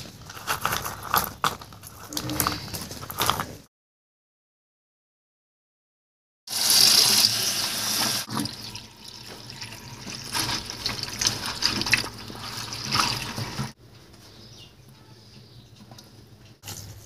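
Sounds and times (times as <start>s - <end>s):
tap water running into a bowl: 6.5s - 13.7s
hand rinsing nuts in water: 8.0s - 13.7s.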